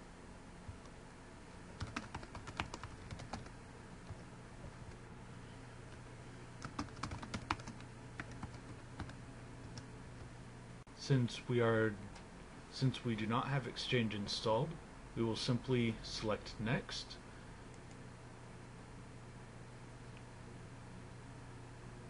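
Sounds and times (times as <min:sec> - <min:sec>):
faint steady hum: 0:00.0 - 0:22.0
keyboard typing: 0:01.8 - 0:05.0, 0:06.6 - 0:09.9.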